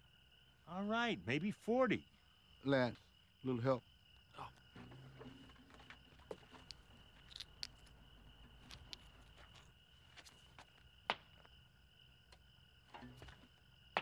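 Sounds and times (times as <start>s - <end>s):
crickets chirping: 0.0s - 14.0s
light ticks and rustles: 5.2s - 10.9s.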